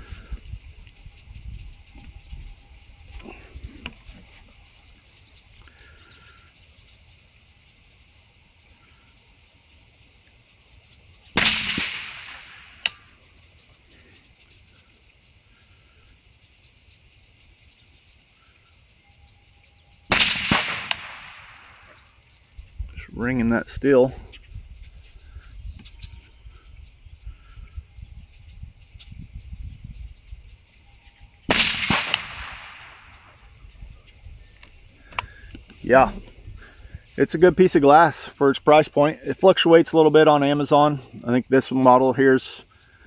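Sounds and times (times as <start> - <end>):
high insect buzz: 0.0 - 39.2
rifle shots with echo: 11.4 - 13.0, 20.1 - 21.9, 31.5 - 33.4.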